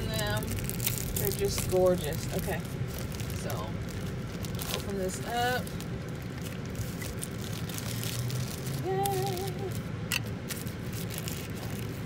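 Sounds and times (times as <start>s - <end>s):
plastic bag and bubble wrap crinkling: 0.0s - 12.0s
person humming: 8.8s - 9.8s.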